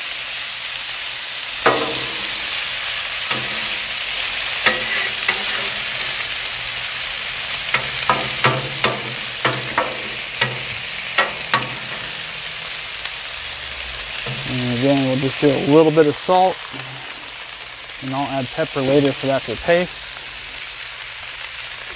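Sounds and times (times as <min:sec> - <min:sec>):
potatoes sizzling on a griddle: 0:00.0 - 0:21.9
metal spatula scraping and clacking: 0:01.6 - 0:06.4, 0:07.6 - 0:13.1, 0:14.2 - 0:15.1.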